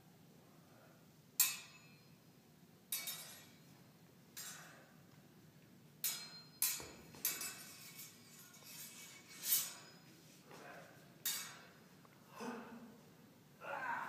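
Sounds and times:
sword blades clinking: 1.4s - 2.0s, 2.9s - 3.6s, 6.0s - 10.0s, 11.2s - 11.8s.

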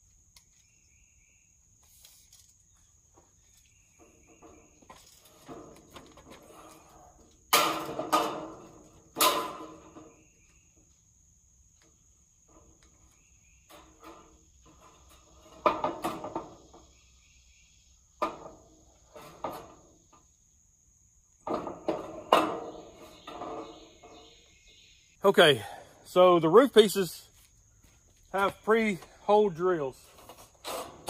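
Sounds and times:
metal roof panel clanking: 7.5s - 10.3s, 13.7s - 16.9s, 21.4s - 24.4s.

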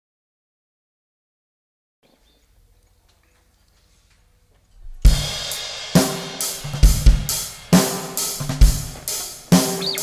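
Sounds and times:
live rock band: 5.1s - 10.0s
crashing cymbals: 5.2s - 10.0s.

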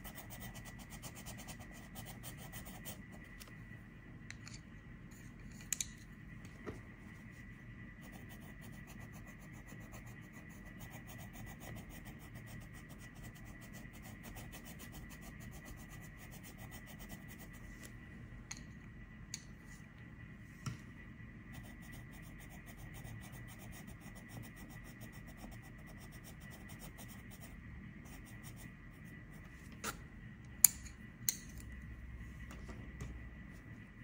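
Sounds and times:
pencil scratching on paper: 0.0s - 3.2s, 8.0s - 17.6s, 21.5s - 29.4s.

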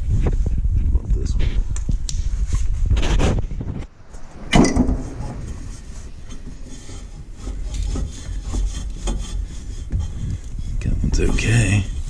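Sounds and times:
pulley bearing low rumble: 3.6s - 11.1s.

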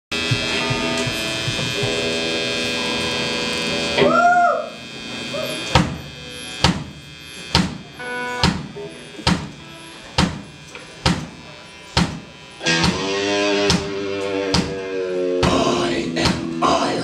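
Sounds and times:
drum hits: 0.1s - 2.3s, 5.7s - 9.6s, 10.2s - 11.4s, 12.0s - 16.6s
electric guitar chords: 0.1s - 17.0s
swooping guitar note: 0.1s - 17.0s.

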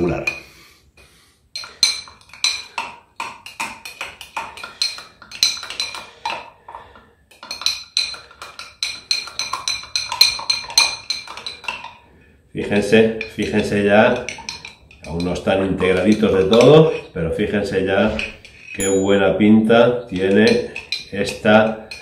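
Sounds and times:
spoon clinking in glass jar: 4.6s - 6.1s, 7.4s - 12.0s, 12.8s - 17.1s, 18.2s - 22.0s.

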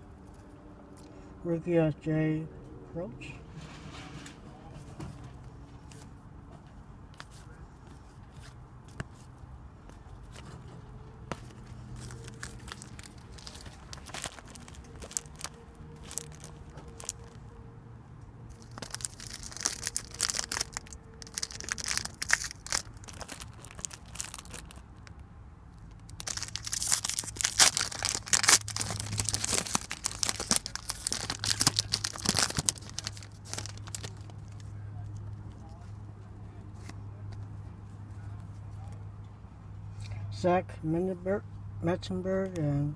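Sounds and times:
plastic wrapper crinkling and tearing: 11.5s - 17.5s, 18.5s - 25.2s, 25.9s - 35.3s.

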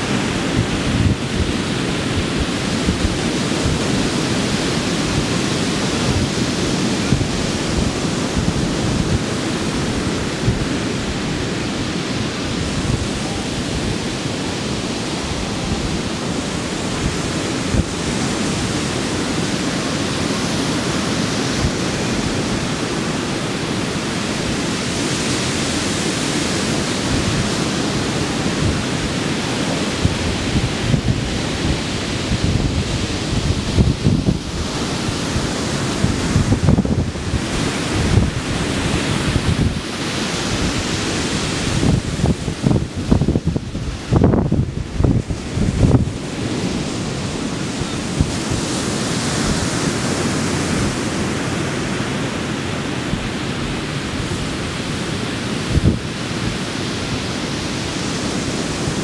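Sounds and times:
surf breaking on a beach: 0.0s - 59.0s
wind buffeting microphone: 0.0s - 59.0s.

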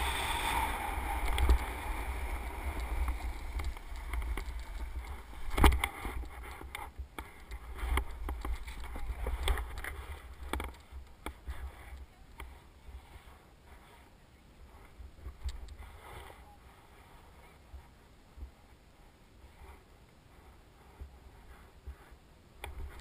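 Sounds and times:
skis scraping on snow: 0.0s - 6.7s
wind buffeting microphone: 0.0s - 10.6s.

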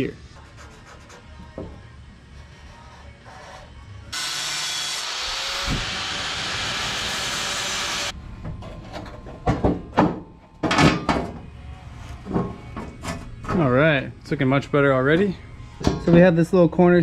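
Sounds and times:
angle grinder cutting metal: 4.1s - 8.1s.

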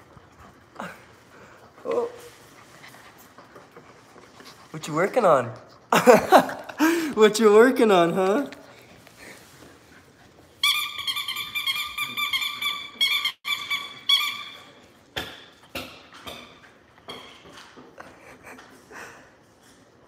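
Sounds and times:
dog toy squeaking: 10.6s - 14.7s.

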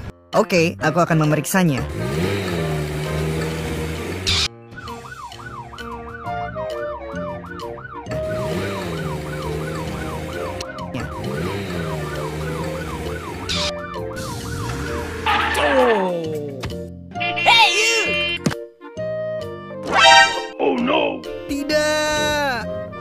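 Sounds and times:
background music: 0.0s - 23.0s
police siren yelping: 4.3s - 16.0s.

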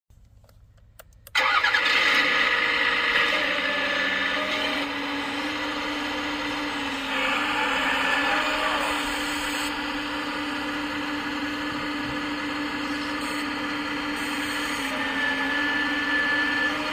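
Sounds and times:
electric hydraulic pump whirring: 1.4s - 16.9s.

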